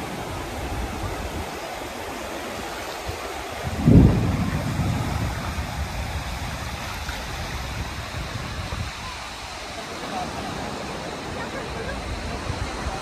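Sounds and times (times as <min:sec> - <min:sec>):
ocean surf: 0:00.0 - 0:13.0
wind: 0:00.0 - 0:13.0
sudden low rumble: 0:03.7 - 0:07.1.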